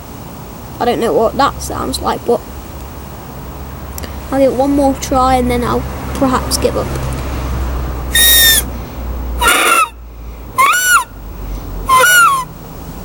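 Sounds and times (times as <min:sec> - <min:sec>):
grass whistle squeals: 0:08.1 - 0:08.7, 0:09.4 - 0:11.2, 0:11.8 - 0:12.6.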